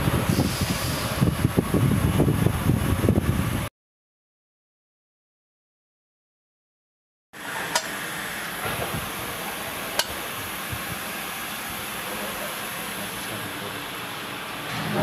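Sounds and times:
grinding machine hissing: 0:07.4 - 0:15.0
sharp click: 0:07.7 - 0:07.9, 0:10.0 - 0:10.2.

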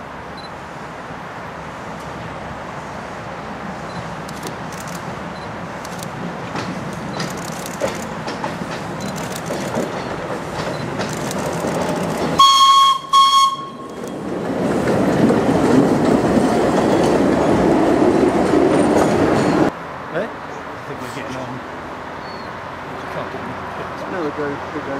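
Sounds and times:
steam tram running past: 0:00.6 - 0:24.9
steam whistle toots: 0:12.4 - 0:13.9.

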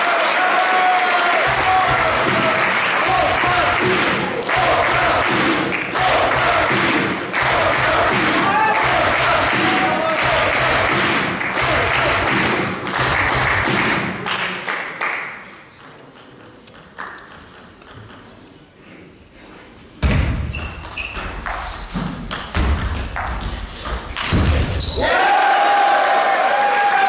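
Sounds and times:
applause: 0:00.0 - 0:15.5, 0:25.4 - 0:27.0
crowd chatter: 0:01.1 - 0:12.9
shoes squeaking on floor: 0:20.4 - 0:25.1.

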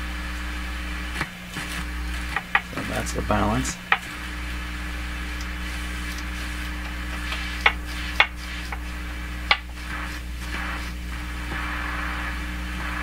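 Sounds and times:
amplifier mains hum: 0:00.0 - 0:13.0.

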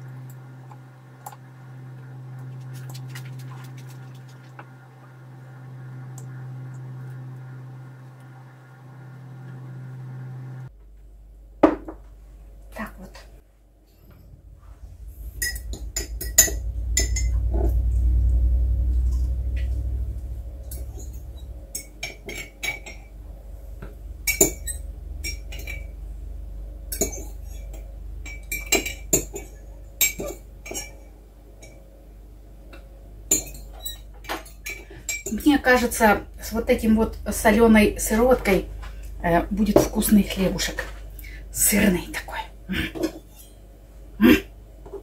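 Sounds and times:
low rumble: 0:00.0 - 0:11.6, 0:12.4 - 0:42.7.

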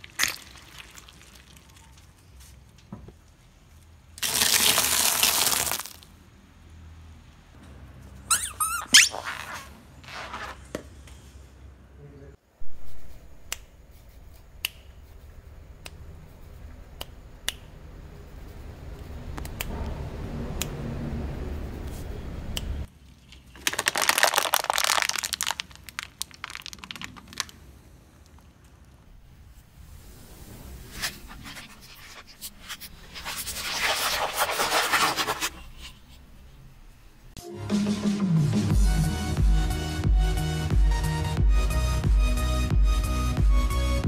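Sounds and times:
plastic packaging crunching: 0:04.2 - 0:06.0, 0:23.4 - 0:27.6
rubber ducks squeaking: 0:08.3 - 0:09.5.

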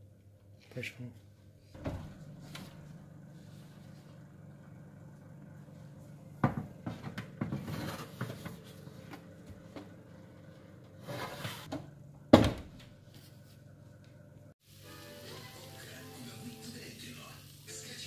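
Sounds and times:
low steady hum: 0:01.2 - 0:16.8
oven door thud: 0:01.8 - 0:02.8
metal baking tray scraping: 0:07.5 - 0:08.6, 0:11.0 - 0:11.7.

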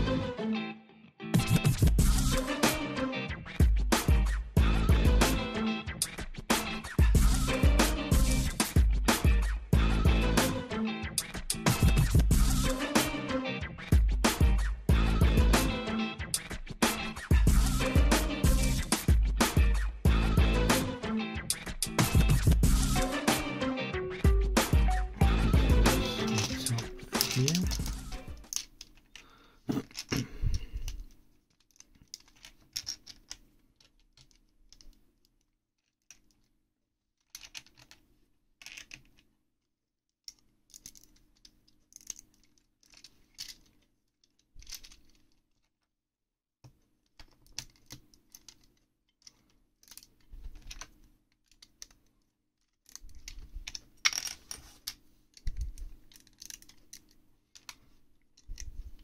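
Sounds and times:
plastic bricks clicking and clattering: 0:26.2 - 0:29.2, 0:29.8 - 0:30.2, 0:30.8 - 0:36.6, 0:37.2 - 0:39.3, 0:40.2 - 0:45.8, 0:46.6 - 0:57.8, 0:58.4 - 0:59.0.

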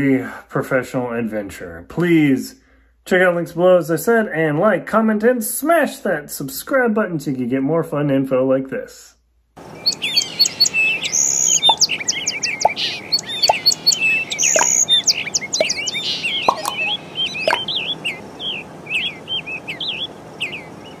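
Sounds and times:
small birds chirping: 0:09.6 - 0:21.0.

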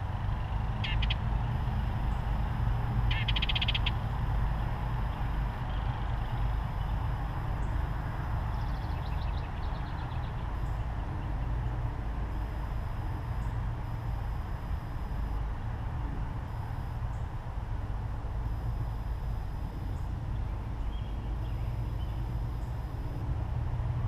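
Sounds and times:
distant songbirds calling: 0:00.0 - 0:12.5, 0:19.8 - 0:22.9
steady low rumble: 0:00.0 - 0:24.0.

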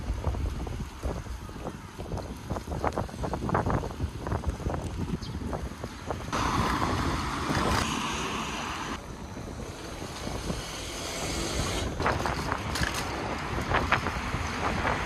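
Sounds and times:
wind buffeting microphone: 0:00.0 - 0:15.0
street traffic: 0:03.9 - 0:15.0.

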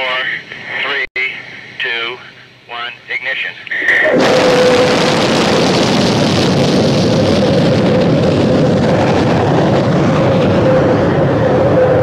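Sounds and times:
rocket engine roaring: 0:03.7 - 0:12.0.

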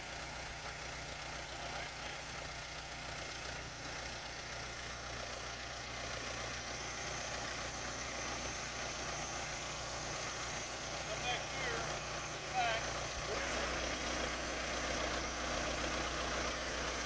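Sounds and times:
backhoe engine idling: 0:00.0 - 0:17.0.

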